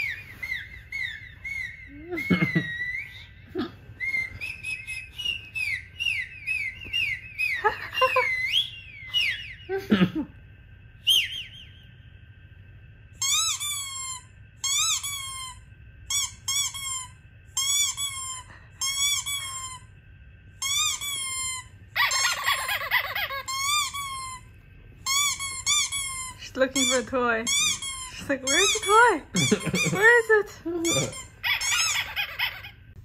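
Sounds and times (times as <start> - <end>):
squeaky toy from phone speaker: 20.6 - 24.4, 30.8 - 32.8.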